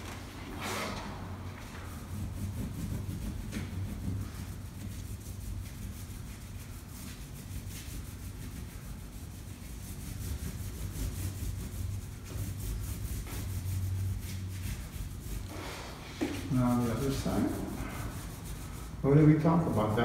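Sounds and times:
oil pastel scrubbing on paper: 1.7 - 20.0.

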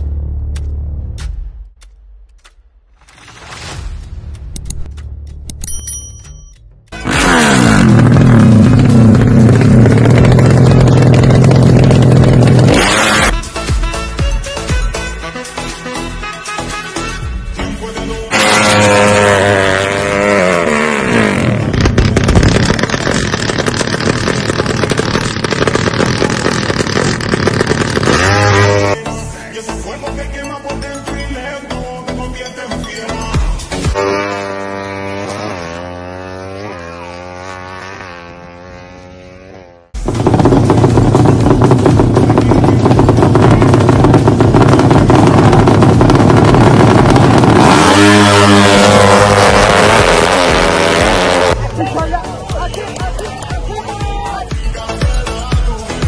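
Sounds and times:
two-stroke motorcycle engine revving: 6.9 - 13.5, 18.3 - 29.0, 33.9 - 51.7.

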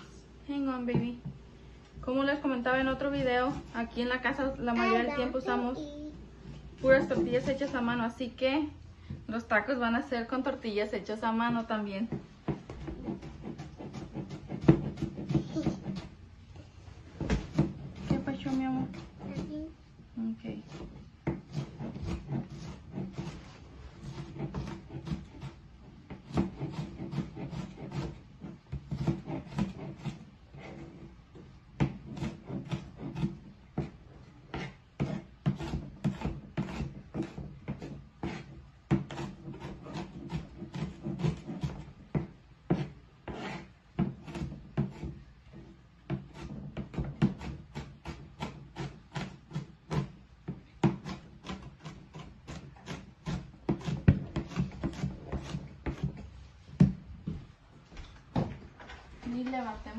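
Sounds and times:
knife chopping on cutting board: 12.1 - 16.1, 24.1 - 30.8, 31.8 - 45.2, 46.1 - 57.0.

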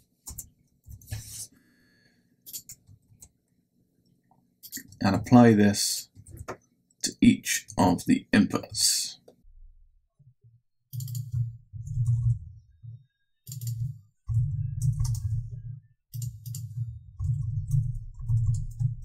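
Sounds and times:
typing on computer keyboard: 10.9 - 12.4, 13.5 - 19.0.

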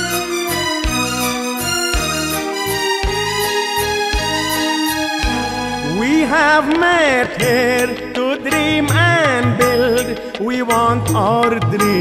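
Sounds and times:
instrumental chords over steady beat: 0.0 - 12.0
man singing: 5.8 - 12.0.

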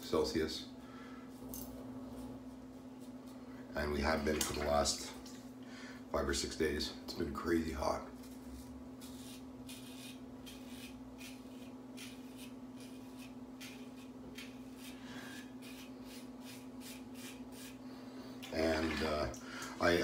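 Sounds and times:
razor scraping stubble: 8.2 - 17.8.

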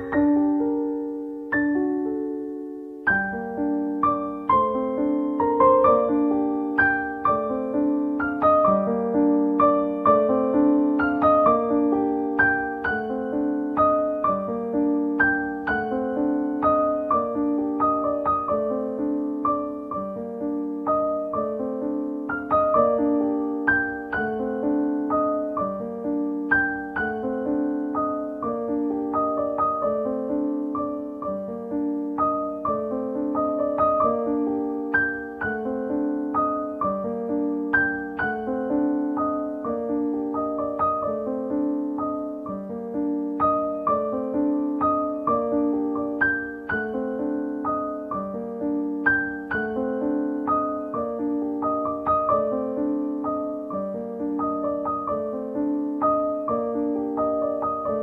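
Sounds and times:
background piano music: 0.0 - 58.0.

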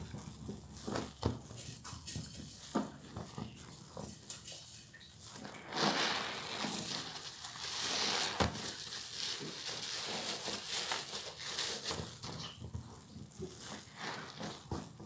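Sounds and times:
sponge squelching in suds: 4.1 - 12.3, 13.4 - 15.0
foam bubbles fizzing: 5.3 - 10.4.

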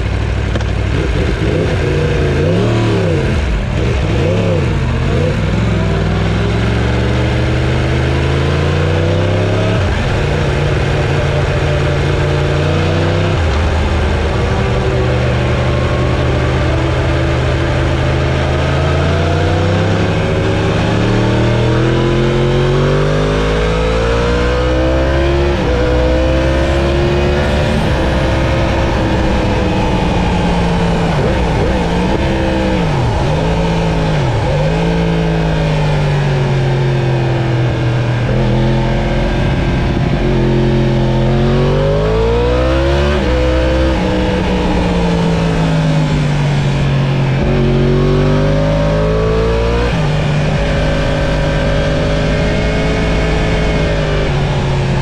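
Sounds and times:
motorcycle engine revving: 0.0 - 55.0
wind rush: 24.2 - 55.0.

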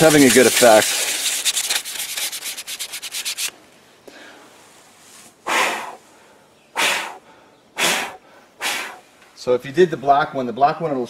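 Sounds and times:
sandpaper scuffing plastic: 0.0 - 3.6.

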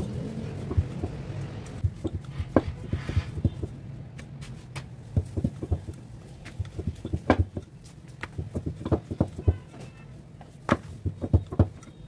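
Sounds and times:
rolling pin knocking on board: 0.6 - 3.7, 5.1 - 9.8, 10.7 - 11.8.

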